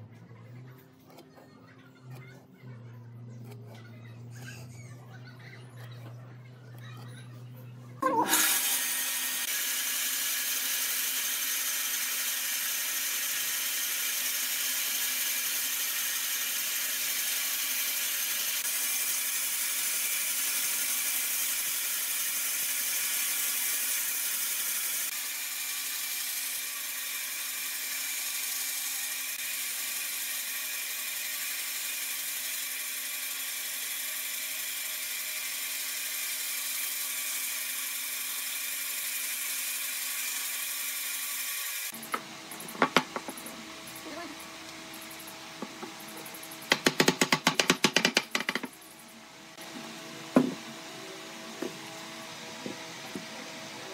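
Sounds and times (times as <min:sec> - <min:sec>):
bandsaw cutting wood: 0:08.0 - 0:48.7.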